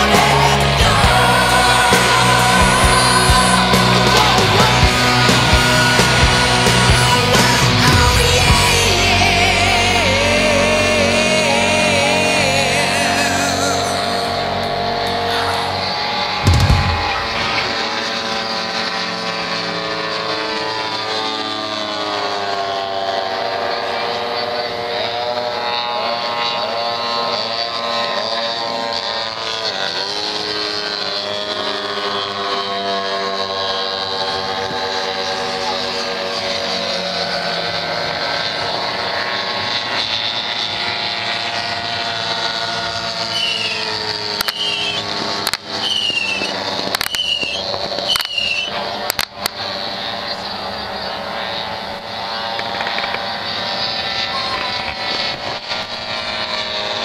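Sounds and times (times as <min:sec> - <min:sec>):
propeller aircraft engines droning: 0:00.0 - 0:57.0
sharp bangs: 0:11.3 - 0:18.5.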